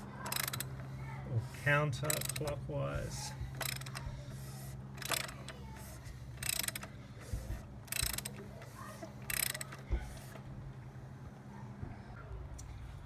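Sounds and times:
socket ratchet clicking: 0.2 - 0.9, 2.0 - 2.6, 3.6 - 4.1, 5.0 - 7.0, 7.8 - 10.4.

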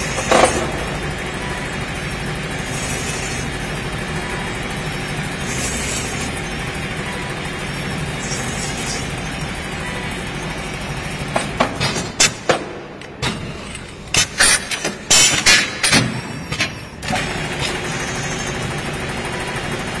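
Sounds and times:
sharp metallic clacks and knocks: 0.0 - 1.0, 11.3 - 17.8
lathe running hum: 0.0 - 11.8, 16.8 - 20.0.

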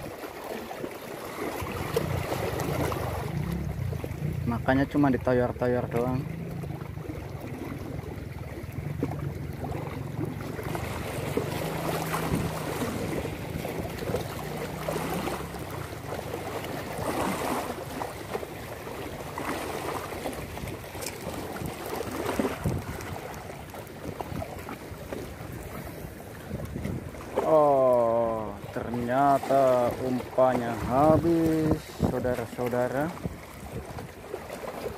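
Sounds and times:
small waves washing against rocks: 0.0 - 34.9
wind buffeting microphone: 7.0 - 18.3, 20.2 - 27.5, 28.8 - 34.2.

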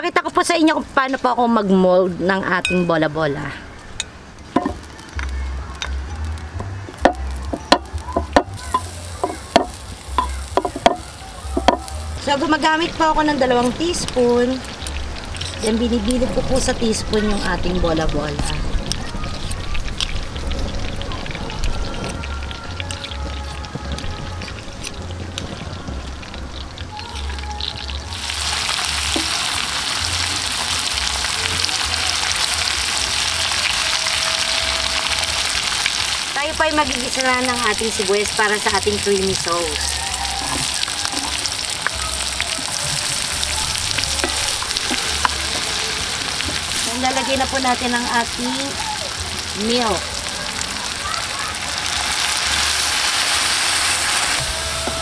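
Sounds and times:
meatballs sizzling in pan: 7.8 - 21.3, 28.1 - 55.0
low rumble: 11.4 - 29.1.

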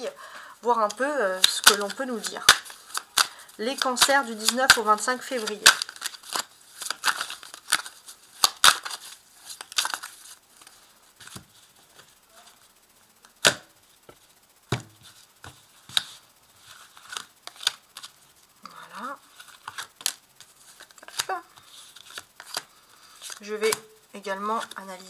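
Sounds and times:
cards snapping and flicking: 1.4 - 10.1, 13.2 - 13.7, 20.8 - 21.3.

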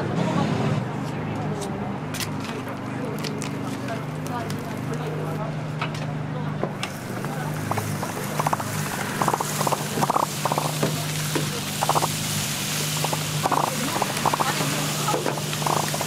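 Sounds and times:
fat sizzling and crackling: 6.9 - 16.0.

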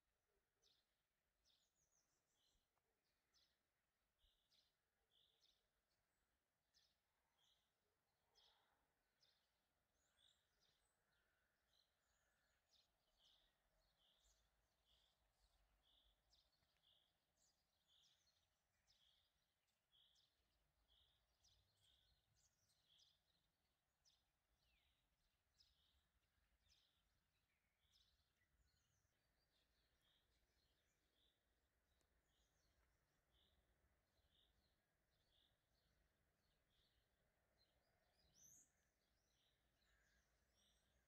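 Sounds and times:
faint bird chirping: 8.3 - 41.0.

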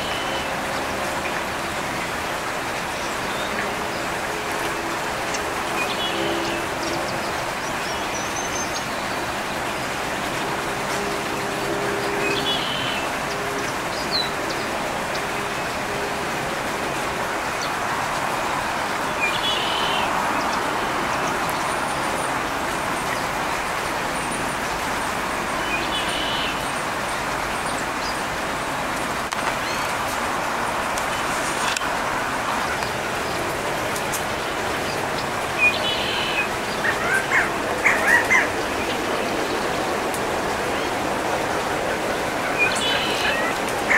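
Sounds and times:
distant road traffic hiss: 0.0 - 43.9.

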